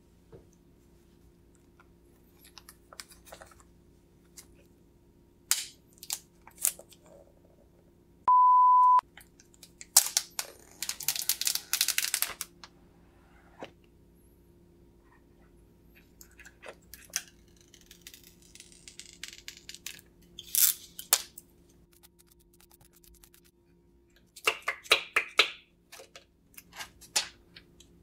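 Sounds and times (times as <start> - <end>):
steady beep: 8.3 - 9.0
plastic wrap crinkling and tearing: 9.8 - 12.5.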